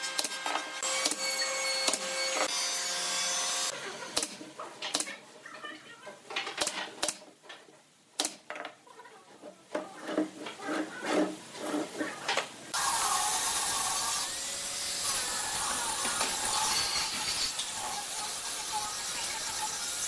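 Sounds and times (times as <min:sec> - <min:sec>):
steady air hiss: 0:12.6 - 0:17.9.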